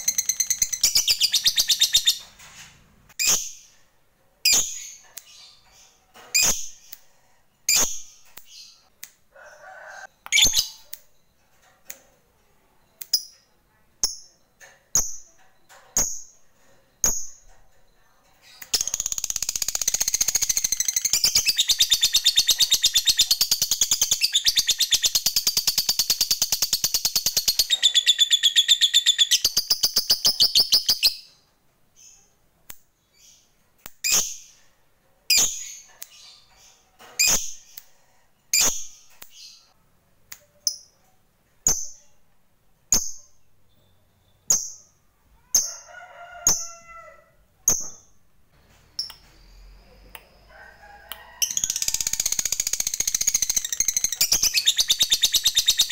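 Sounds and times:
lovebird chirping: 0.0s - 2.3s, 10.2s - 11.4s, 12.7s - 31.4s, 42.9s - 45.8s, 47.6s - 50.6s, 51.4s - 55.9s.

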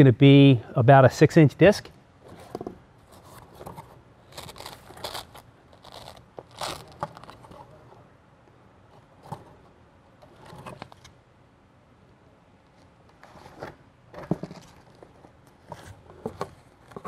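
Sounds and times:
boxes rustling and knocking on shelf: 2.2s - 4.0s, 13.3s - 17.0s.

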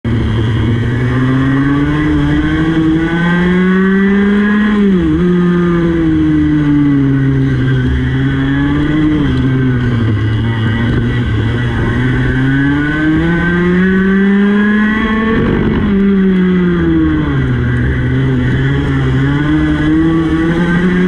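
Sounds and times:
kart engine at full throttle: 0.0s - 21.0s.

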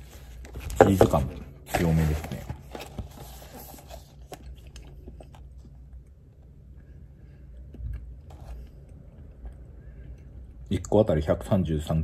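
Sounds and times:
person chewing food: 4.3s - 10.6s.

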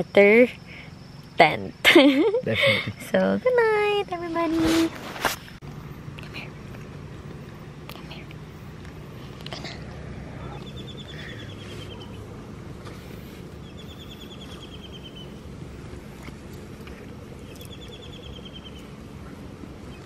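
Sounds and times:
steady low hum: 0.0s - 20.0s
small bird trilling: 10.5s - 12.3s, 13.6s - 15.4s, 17.4s - 18.9s.

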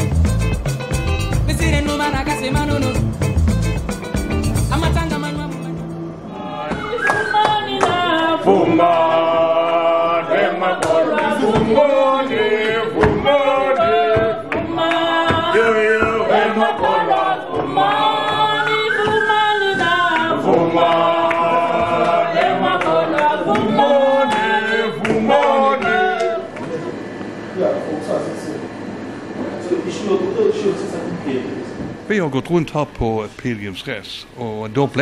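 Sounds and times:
group singing a cappella: 4.8s - 27.5s.

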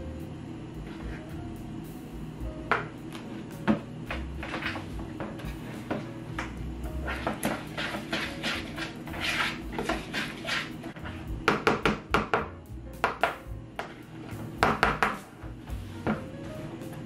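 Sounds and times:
utensil scraping dishes: 3.7s - 11.3s.

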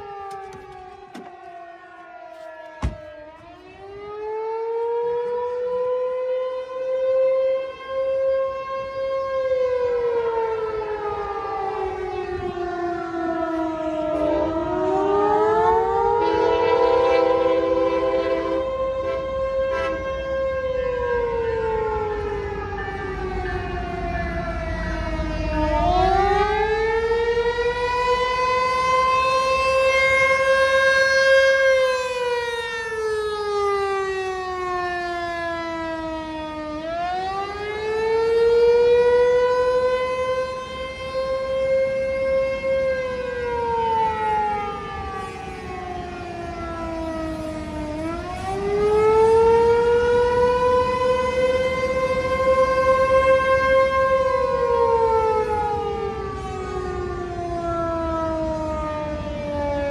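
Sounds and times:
warning siren wailing: 0.0s - 59.9s.

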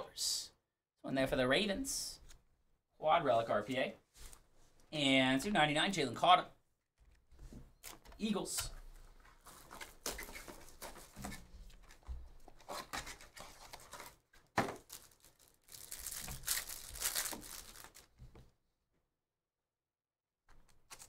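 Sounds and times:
wrapper and cards rustling: 7.1s - 18.5s, 20.5s - 21.0s
plastic wrapper tearing: 11.8s - 18.2s.

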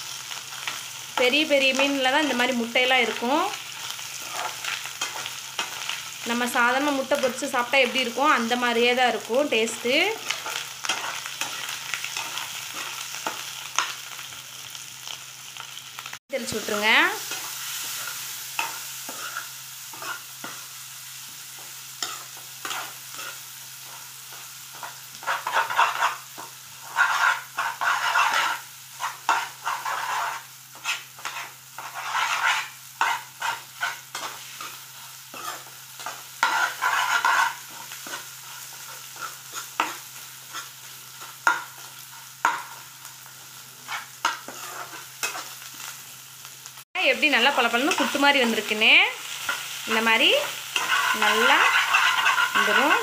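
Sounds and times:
hot oil sizzling: 0.0s - 53.0s
spatula scraping metal pan: 9.6s - 13.9s, 17.2s - 20.6s, 22.0s - 40.7s, 43.8s - 45.6s, 49.4s - 53.0s.

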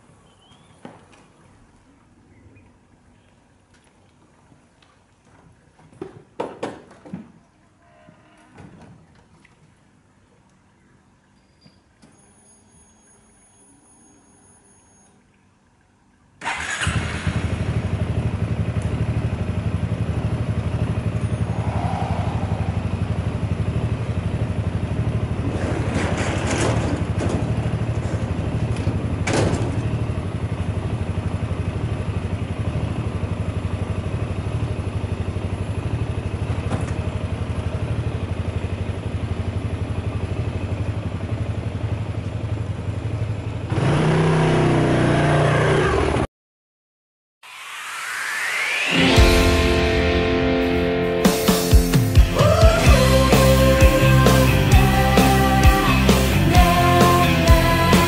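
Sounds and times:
scooter engine starting and idling: 16.4s - 21.5s, 22.7s - 46.2s, 51.3s - 58.0s.

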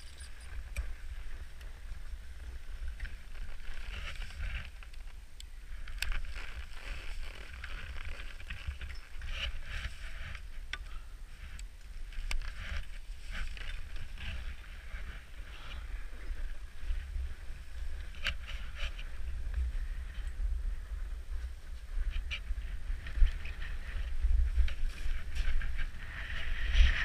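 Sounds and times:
wind rumble on microphone: 0.0s - 27.0s
skis scraping over snow: 6.1s - 10.5s, 11.4s - 20.2s, 21.4s - 27.0s.

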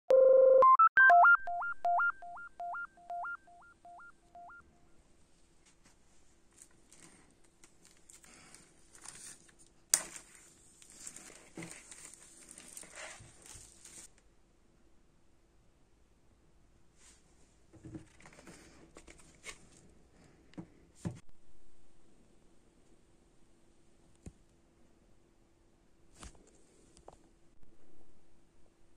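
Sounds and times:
synthesizer jingle beeps: 0.1s - 4.6s
plastic shrink wrap crinkling: 6.5s - 14.1s.

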